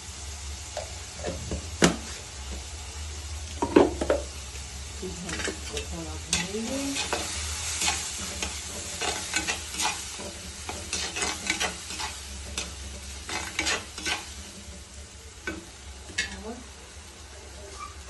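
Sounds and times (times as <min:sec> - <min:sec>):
food sizzling in pot: 0:00.0 - 0:18.0
spatula knocking and scraping pot: 0:05.3 - 0:14.3.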